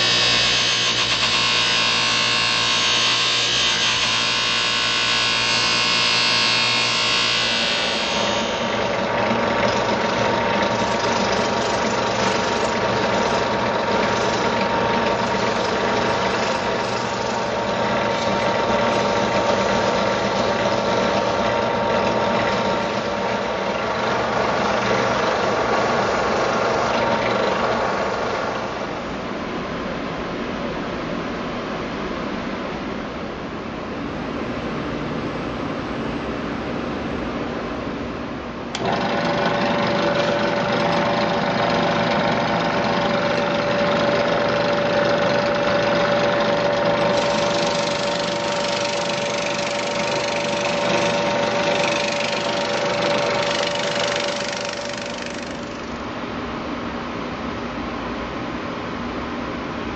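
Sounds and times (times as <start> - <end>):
power tool running: 0.0 - 28.2, 38.7 - 56.1.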